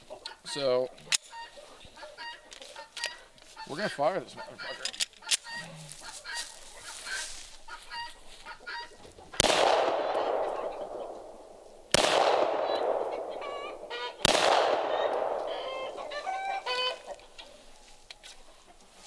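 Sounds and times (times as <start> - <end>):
chickens clucking: 0.0 - 9.5, 10.1 - 11.3, 12.7 - 19.0
pistol shots echoing: 9.4 - 16.0.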